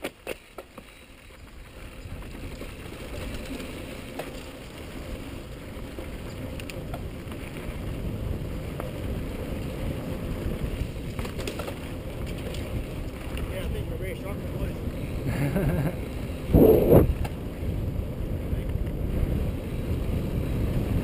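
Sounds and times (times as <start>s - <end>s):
bike clicks and rattles: 0.0s - 16.4s, 18.6s - 21.0s
tyres rumbling on loose dirt: 0.0s - 21.0s
air rushing past: 16.5s - 17.2s.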